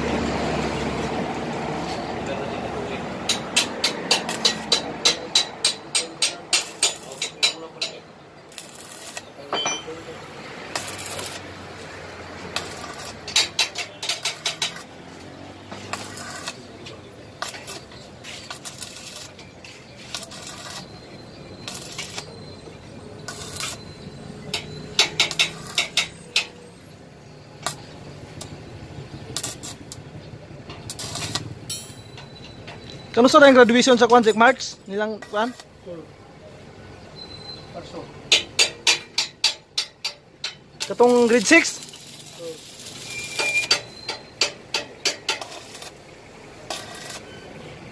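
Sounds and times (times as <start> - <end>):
welding arc hissing and crackling: 3.3 - 7.9, 8.5 - 9.5, 10.5 - 15.2, 15.8 - 21.0, 21.6 - 22.3, 23.2 - 23.8, 24.5 - 26.5, 27.5 - 30.1, 30.9 - 31.9, 33.2 - 35.9, 40.8 - 47.3.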